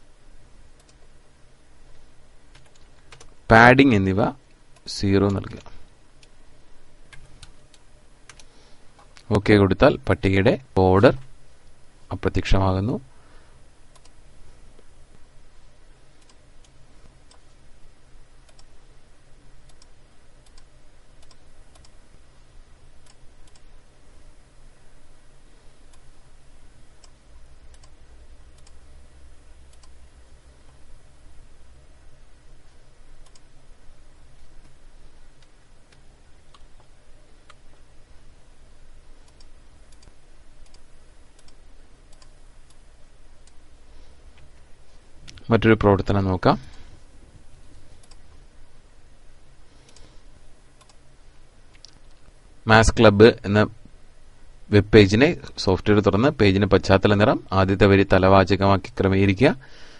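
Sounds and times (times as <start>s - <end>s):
faint low hum: 0.0s - 59.9s
computer mouse clicking: 0.8s - 1.1s, 2.5s - 3.4s, 7.1s - 9.2s, 13.9s - 14.2s, 16.2s - 17.6s, 18.4s - 18.7s, 19.7s - 22.0s, 23.0s - 23.7s, 27.0s - 28.8s, 29.7s - 30.0s, 33.2s - 33.5s, 39.2s - 40.8s, 41.4s - 42.8s, 48.0s - 48.4s, 50.8s - 51.0s.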